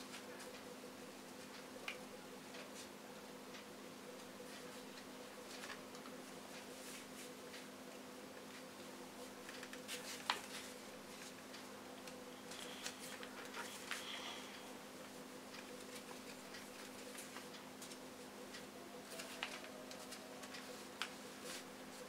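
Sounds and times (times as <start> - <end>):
faint steady hum: 0.0 - 22.0
paper folding and rustling: 5.4 - 7.3, 9.4 - 11.4, 19.0 - 22.0
crisp paper clicks: 19.0 - 21.2.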